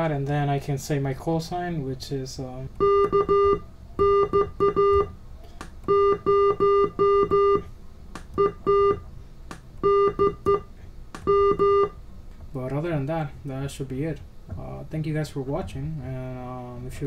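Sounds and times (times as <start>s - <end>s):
morse code beeps: 2.8s - 5.1s, 5.9s - 7.7s, 8.4s - 9.0s, 9.8s - 12.0s.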